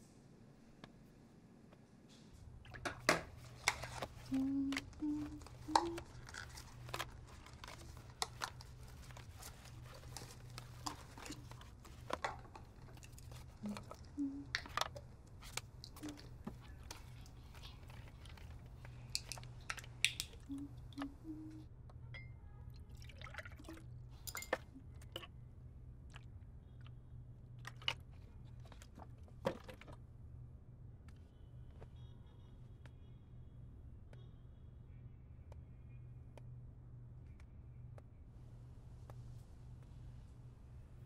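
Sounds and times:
light crinkling: 2.1 - 21.6.

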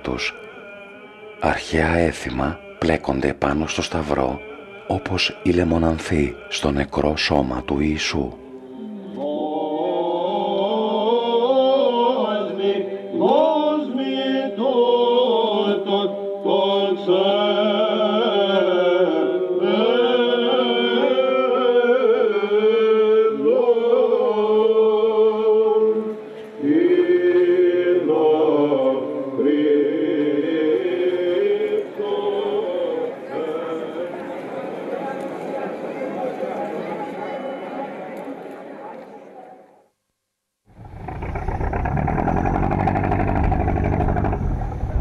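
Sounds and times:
voices chanting over a drone: 0.0 - 35.1.

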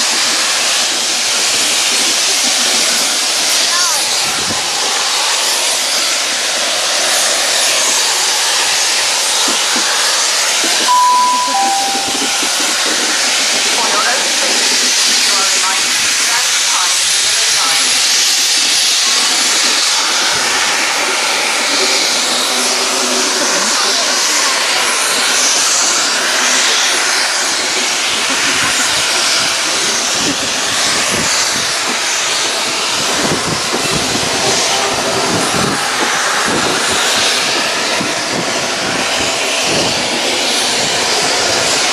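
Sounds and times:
steam locomotive hissing: 0.0 - 41.9
steam whistle notes: 10.9 - 13.0.

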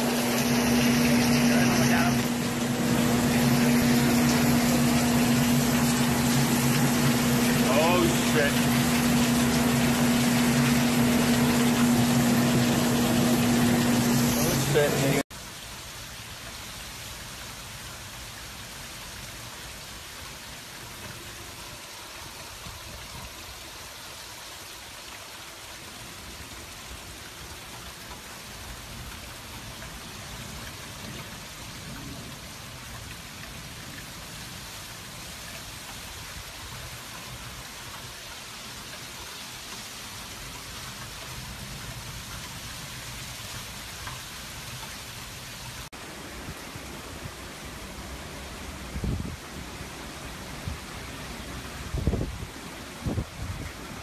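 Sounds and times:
heavy rain hissing: 0.0 - 16.2.

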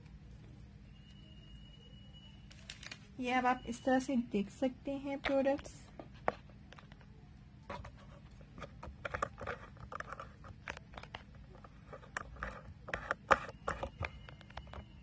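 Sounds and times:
handling clicks taps and rustles: 7.7 - 15.0.

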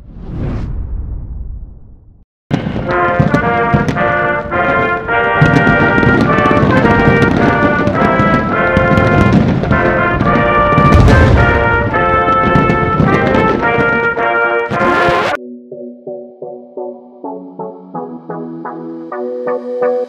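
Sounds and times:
whoosh sound effect: 0.0 - 2.2
orchestral music with brass: 2.6 - 15.4
sharp percussion hits: 10.3 - 13.9.

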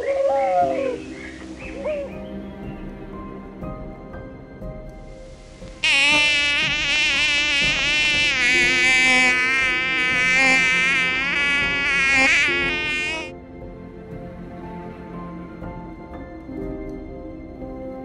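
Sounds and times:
faint background music: 0.0 - 18.0
mosquito whine: 5.4 - 13.3.

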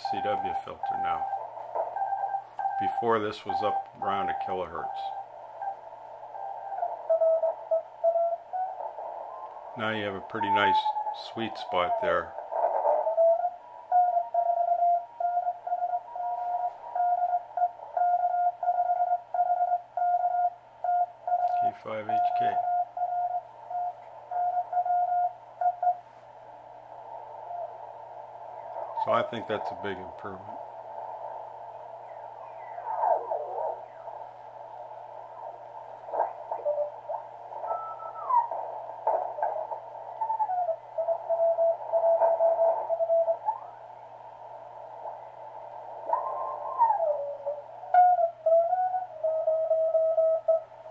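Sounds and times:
morse code tone: 0.0 - 26.1, 32.0 - 43.8
radio hiss: 0.0 - 48.1.

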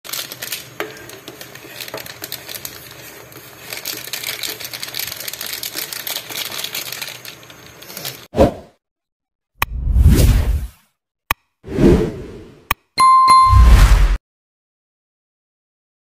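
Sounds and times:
mixture boiling in pot: 0.1 - 8.3.

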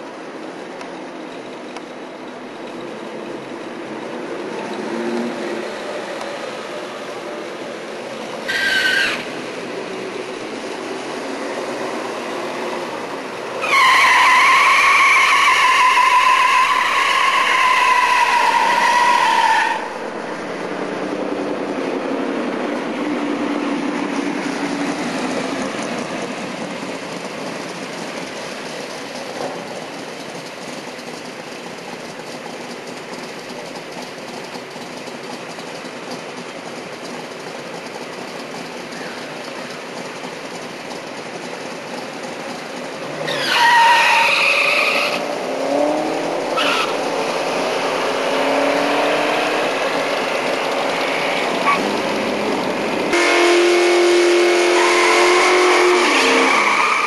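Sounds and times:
tyres squealing: 8.4 - 9.4, 13.6 - 20.3, 41.9 - 45.3, 46.5 - 47.2, 54.6 - 57.0
car engine running: 17.4 - 57.0.

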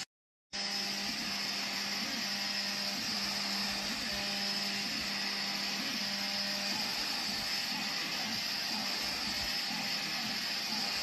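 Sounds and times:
stepper motors tone: 0.6 - 11.0.

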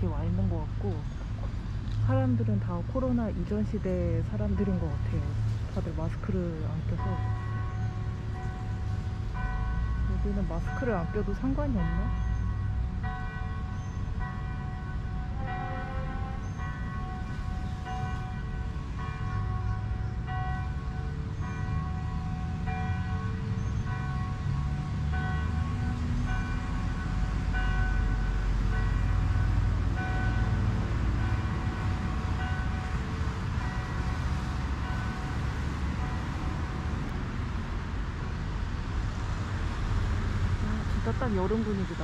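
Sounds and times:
distant bells ringing: 3.9 - 37.1.

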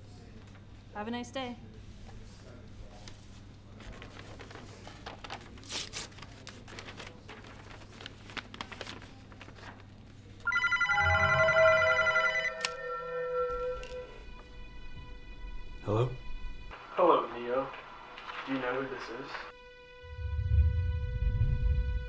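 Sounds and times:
padded envelope rustling: 3.0 - 10.4, 17.2 - 19.5
mobile phone ringing: 10.5 - 13.1.

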